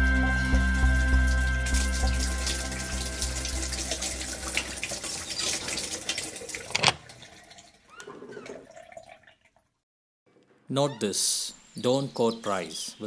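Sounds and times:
hands washing under water: 0.8 - 9.5
tap water splashing into basin: 1.6 - 7.8.

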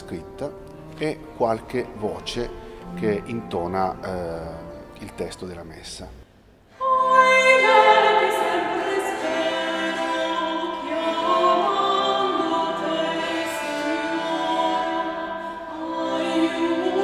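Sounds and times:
bowed string instrument: 0.0 - 6.2, 6.8 - 17.0
portative organ: 0.0 - 6.3
woman singing: 6.7 - 17.0.

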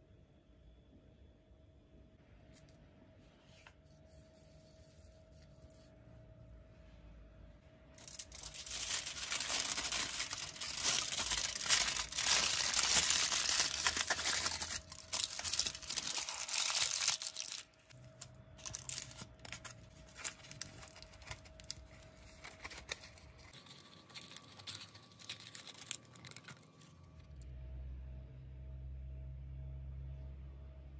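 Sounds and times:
aluminium foil crinkling: 8.0 - 27.4.

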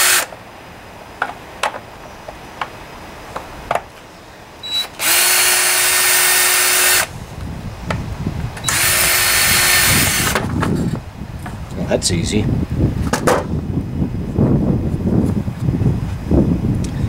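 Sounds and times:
power drill motor whine: 0.0 - 0.3, 4.6 - 7.1, 8.6 - 10.5.

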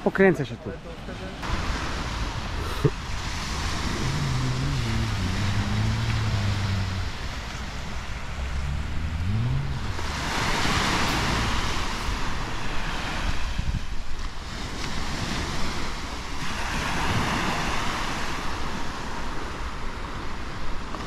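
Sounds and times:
surf washing on sandy beach: 1.0 - 21.0
motorboat engine droning: 1.4 - 13.1
wind on microphone: 1.4 - 19.3.

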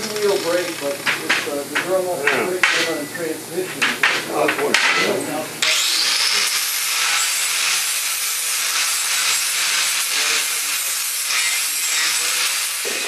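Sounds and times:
angle grinder sanding metal: 0.0 - 3.0, 5.6 - 13.0.

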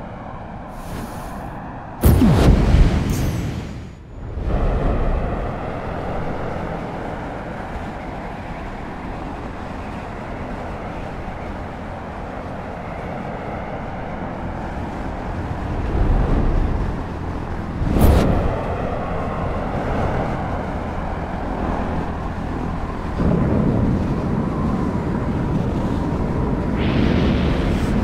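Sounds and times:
jet engine rushing: 25.2 - 28.0.

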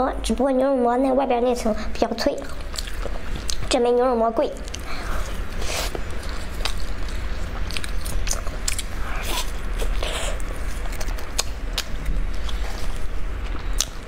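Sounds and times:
person chewing crunchy fried food: 2.5 - 3.7, 4.6 - 14.0.

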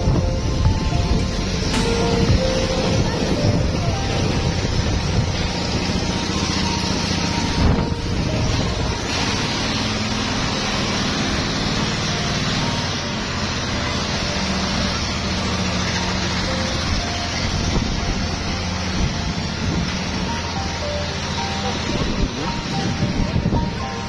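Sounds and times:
engine running steadily: 0.0 - 24.0.

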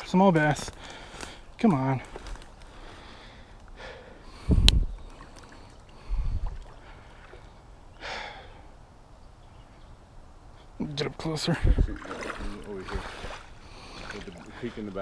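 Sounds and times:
breaths close to microphone: 0.7 - 7.4, 8.0 - 8.7, 12.8 - 14.8.

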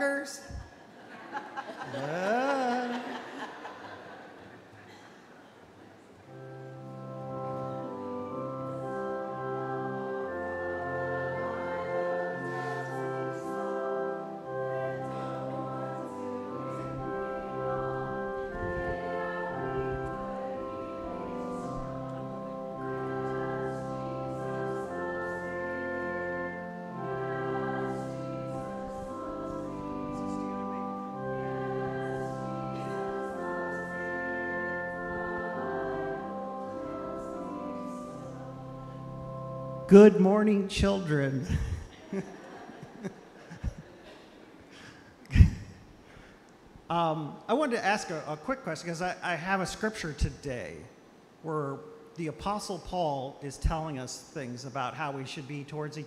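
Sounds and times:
church organ playing slow chords: 6.2 - 46.4.

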